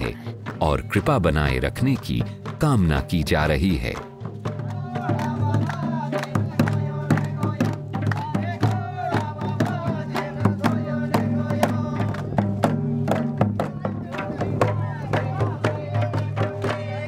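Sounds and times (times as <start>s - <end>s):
hand drums beating: 0.0s - 17.0s
voices singing together: 4.5s - 12.8s, 13.5s - 17.0s.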